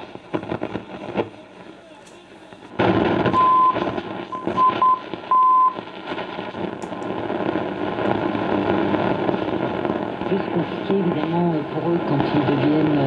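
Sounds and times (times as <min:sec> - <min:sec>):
radio hiss and static: 0:00.0 - 0:13.0
steady high beep keyed on and off: 0:03.4 - 0:03.8, 0:04.4 - 0:05.8.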